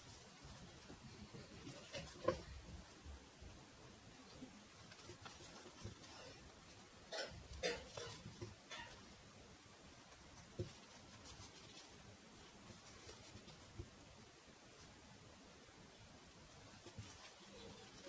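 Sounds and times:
yarn and needle rustling: 0:00.0 - 0:15.2, 0:16.0 - 0:18.0.

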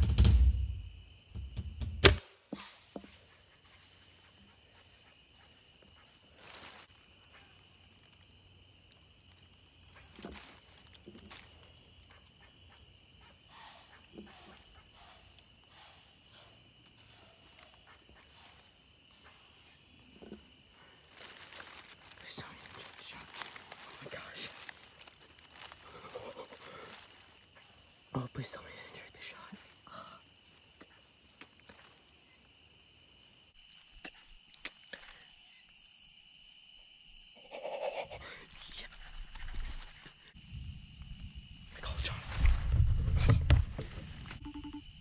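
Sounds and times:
insects chirring: 0:00.0 - 0:45.0
crossbow firing crack: 0:01.9 - 0:02.9
faint rustles and clicks: 0:20.2 - 0:27.3.

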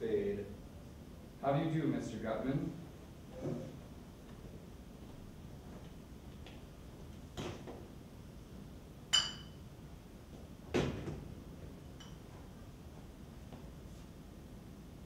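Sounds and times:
glass clinking: 0:09.1 - 0:09.6, 0:12.0 - 0:12.3.

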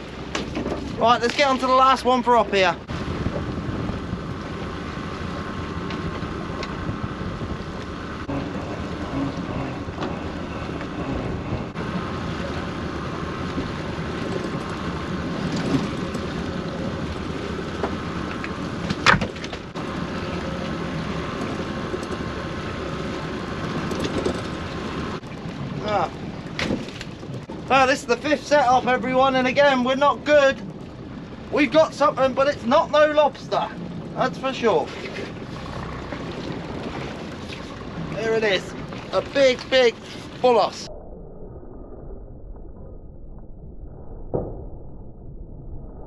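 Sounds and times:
wind on microphone: 0:00.0 - 0:29.4
boat engine running: 0:00.0 - 0:40.9.

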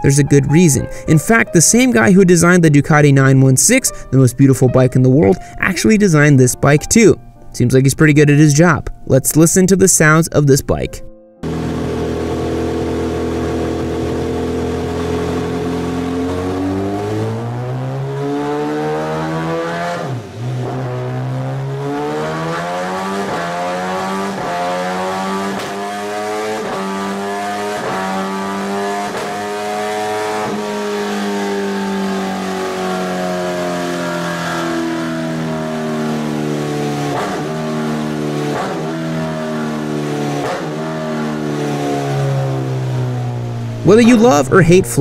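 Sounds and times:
motorcycle engine idling and revving: 0:11.4 - 0:45.0.

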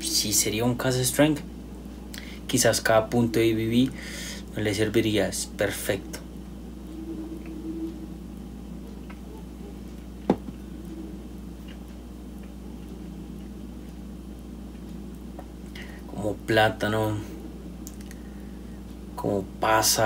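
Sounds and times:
low room hum: 0:00.0 - 0:20.0.

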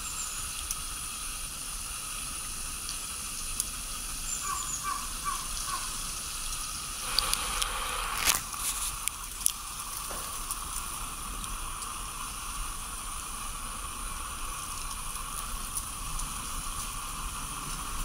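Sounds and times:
even hiss: 0:00.0 - 0:18.0
thin high whine: 0:07.0 - 0:09.1.

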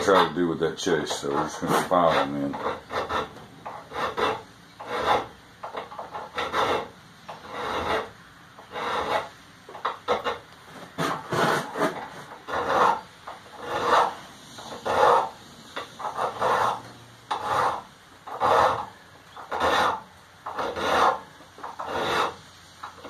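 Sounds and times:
file rasping on metal: 0:00.0 - 0:10.4, 0:11.0 - 0:23.0.

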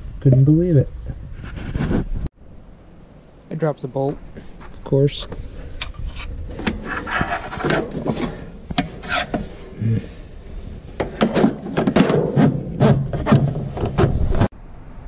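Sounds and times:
metal tool scraping and knocking: 0:05.8 - 0:09.7.

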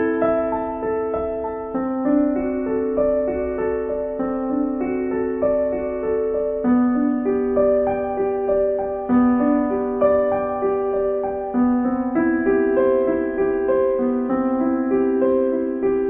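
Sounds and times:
slow piano melody: 0:00.0 - 0:16.0.

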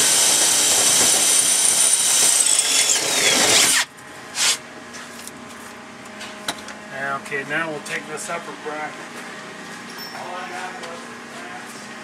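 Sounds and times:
cordless drill boring through metal: 0:00.0 - 0:04.6.

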